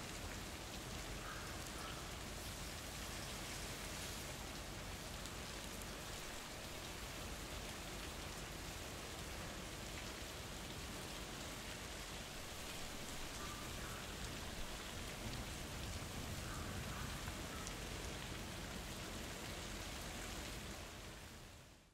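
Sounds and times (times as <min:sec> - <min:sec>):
rain pattering on ground: 0:00.0 - 0:21.9.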